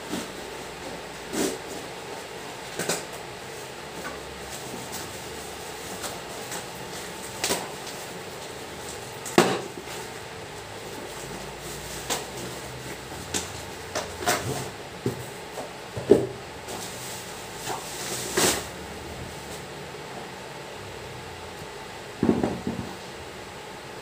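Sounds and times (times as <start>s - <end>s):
cardboard box knocks: 22.2s - 23.0s.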